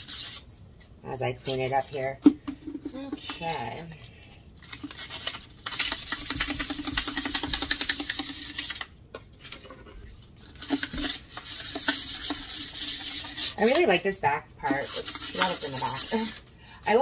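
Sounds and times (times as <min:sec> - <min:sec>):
sanding pad rubbing wood: 0:11.0 - 0:13.7, 0:14.7 - 0:16.3.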